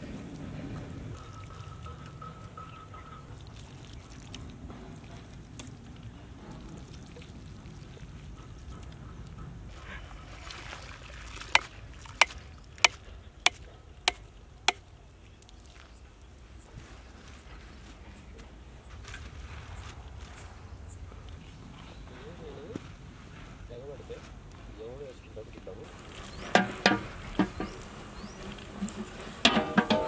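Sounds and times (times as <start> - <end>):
outdoor background: 0.0 - 30.0
curry pouring and scraping: 25.8 - 30.0
metal ladle tapping on pot: 26.6 - 27.6, 29.5 - 30.0.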